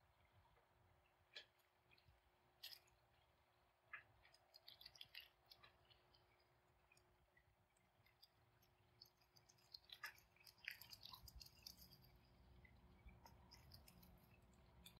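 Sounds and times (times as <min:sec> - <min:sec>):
faint pond ambience: 0:00.0 - 0:15.0.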